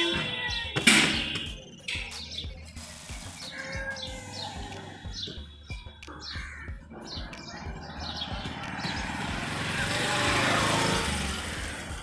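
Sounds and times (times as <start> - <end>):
vehicle passing by: 7.1 - 12.0.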